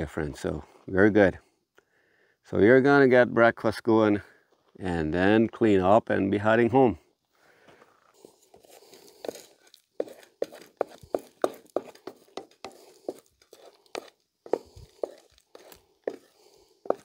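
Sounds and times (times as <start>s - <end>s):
wooden spatula scraping frying pan: 8.5s - 17.0s.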